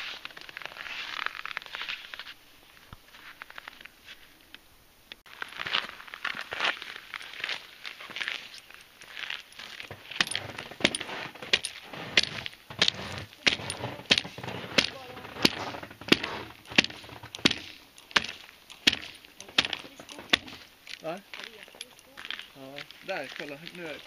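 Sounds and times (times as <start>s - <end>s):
metal spike striking ice: 10.1s - 20.7s.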